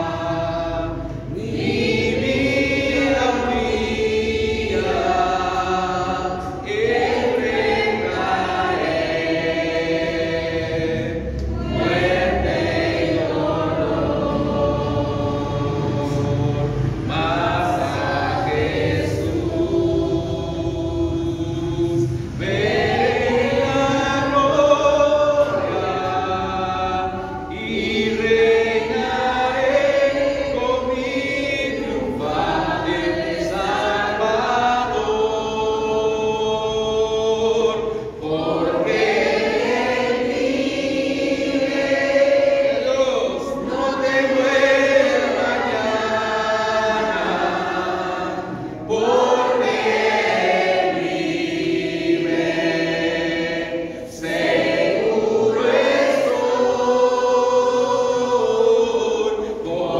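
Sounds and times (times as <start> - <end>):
voices singing a hymn unaccompanied: 0.0 - 59.9.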